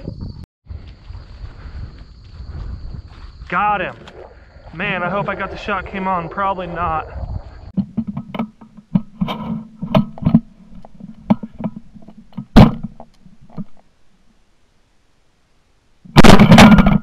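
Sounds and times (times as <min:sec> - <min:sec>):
clicks and knocks: 0:07.8 - 0:13.8
loud shotgun blast: 0:16.1 - 0:17.0
sharp crack: 0:16.1 - 0:17.0.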